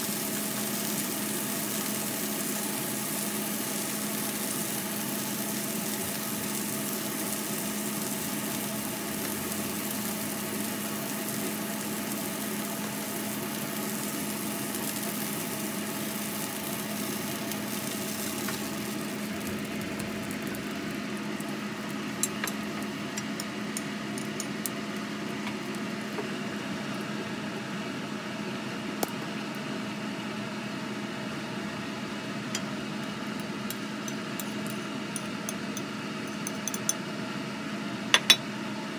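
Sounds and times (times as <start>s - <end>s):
meat sizzling in a frying pan: 0.0s - 28.4s.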